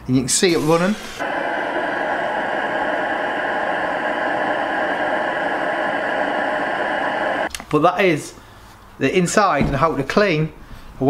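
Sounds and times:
air heater burning rushing: 0:00.4 - 0:07.5.

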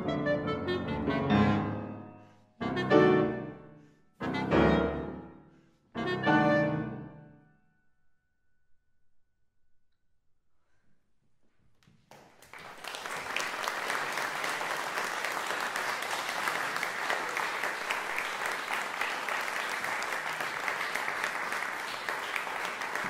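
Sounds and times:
audience applauding: 0:12.1 - 0:23.0.

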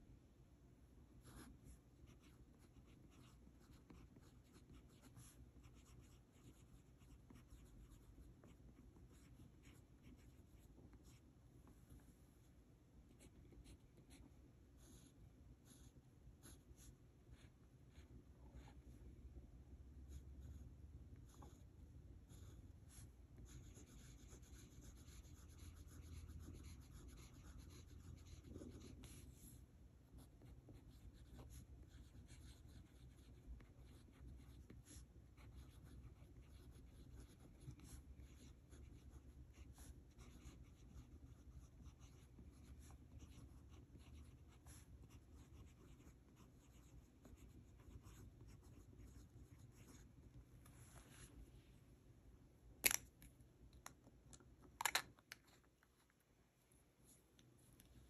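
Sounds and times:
pen nib scratching paper: 0:01.3 - 0:11.2, 0:22.2 - 0:29.6, 0:30.2 - 0:50.1.

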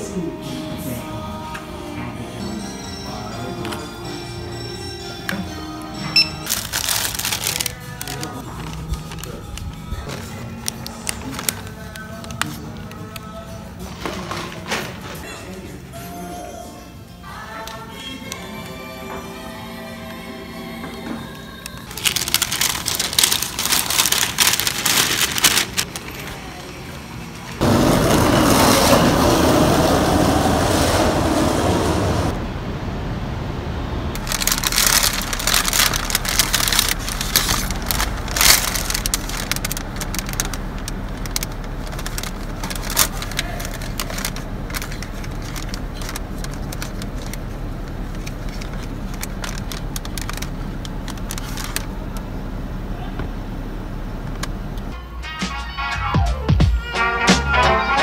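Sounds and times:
paper bags rustling and crinkling: 0:06.4 - 0:15.4, 0:21.7 - 0:26.6, 0:34.2 - 0:52.2
car hum: 0:27.2 - 0:55.0.

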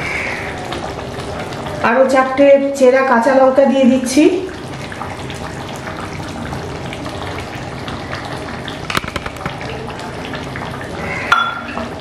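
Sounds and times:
curry bubbling at a boil: 0:00.0 - 0:12.0
small pops and crackles: 0:08.9 - 0:09.8.

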